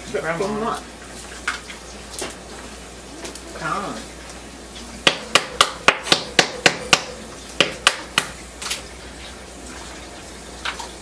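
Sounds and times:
sharp hard knocks: 5.1 - 8.4.

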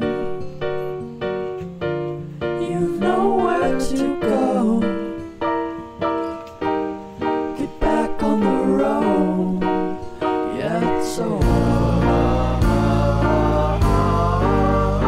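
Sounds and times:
keyboard chords: 0.0 - 15.0
person singing: 2.6 - 5.4, 7.5 - 15.0.

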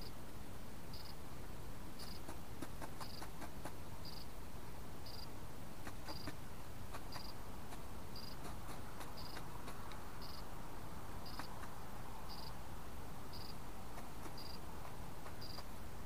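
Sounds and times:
pheasant pecking clicks: 2.0 - 3.8, 5.8 - 10.1, 11.3 - 11.8, 13.9 - 15.7.

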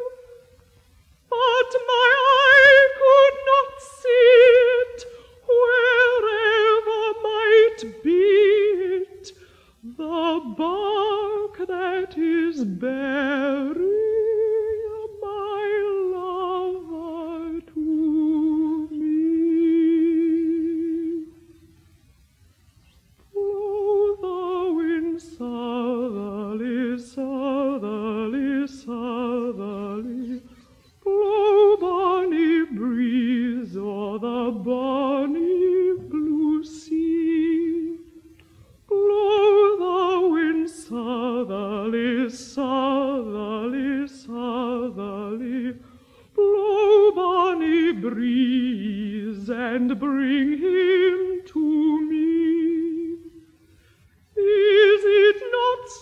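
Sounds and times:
woman singing unaccompanied: 0.0 - 21.9, 23.2 - 53.6, 54.2 - 56.0.

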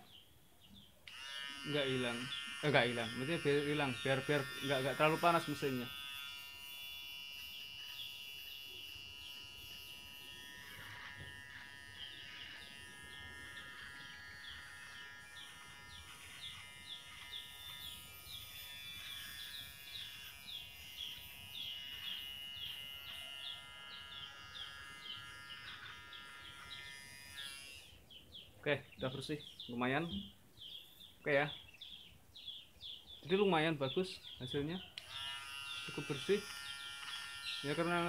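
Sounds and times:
clipper trimming stubble chirps: 1.0 - 28.0, 34.3 - 38.0
hair clipper humming: 1.0 - 28.1, 34.9 - 38.0.

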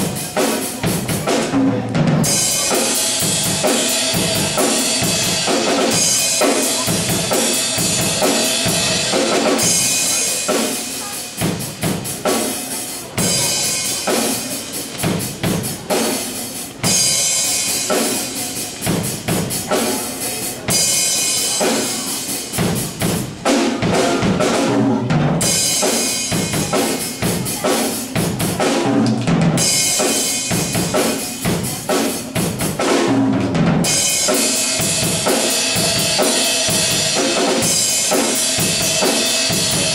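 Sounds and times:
drum kit solo: 0.0 - 39.9.

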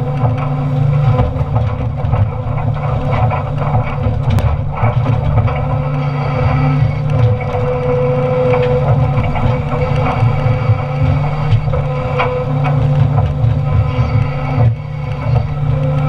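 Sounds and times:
excavator diesel engine: 0.0 - 16.0
steady high whine: 0.0 - 16.0.

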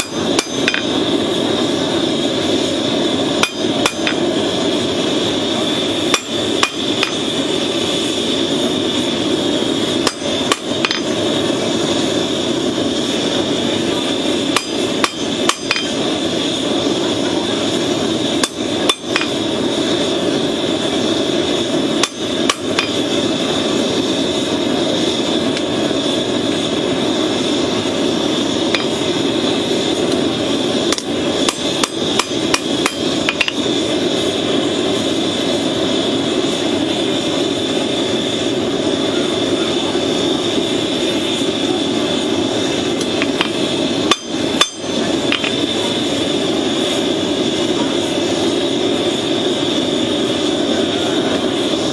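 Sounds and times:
sharp metal knocks: 0.0 - 0.9
forge roaring: 0.0 - 51.9.

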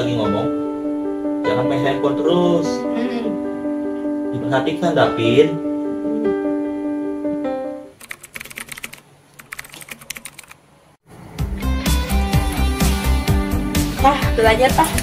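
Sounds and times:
laptop keyboard typing: 8.0 - 10.6
background music with steady beat: 11.3 - 15.0
guitar background music: 11.4 - 15.0.

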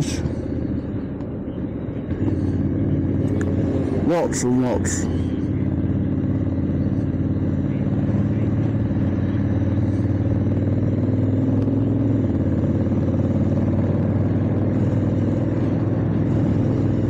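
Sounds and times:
motorcycle engine running: 0.0 - 17.0
wind and road noise: 0.0 - 17.0.

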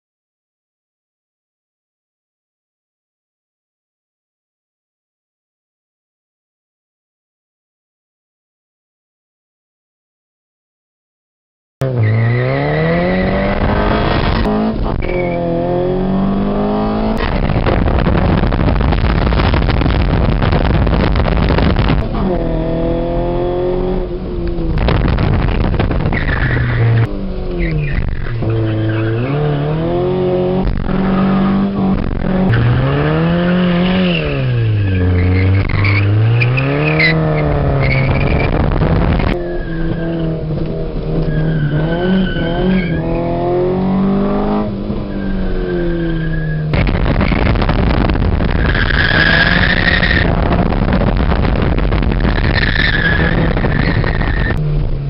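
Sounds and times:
car engine accelerating: 11.8 - 55.0.

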